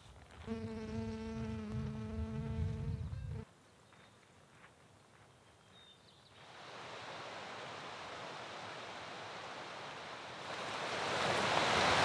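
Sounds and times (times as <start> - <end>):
creek water rushing: 6.5 - 12.0.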